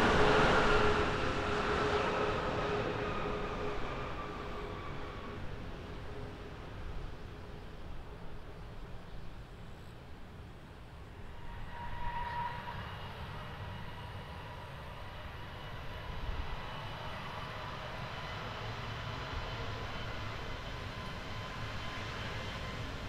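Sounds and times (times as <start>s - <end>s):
jet engines whining and rumbling: 0.0s - 23.0s.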